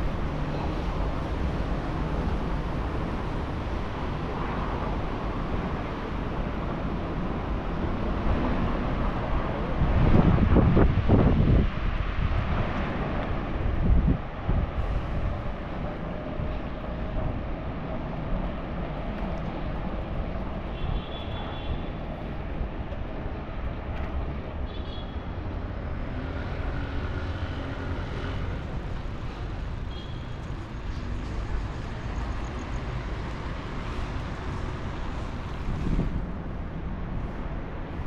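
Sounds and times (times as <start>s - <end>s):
wind buffeting microphone: 0.0s - 21.1s, 30.5s - 38.0s
road noise: 0.0s - 38.0s.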